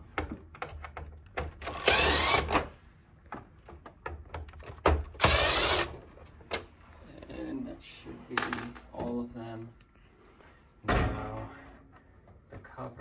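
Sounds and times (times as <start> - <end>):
power screwdriver running: 1.6 - 2.7, 5.2 - 6.0.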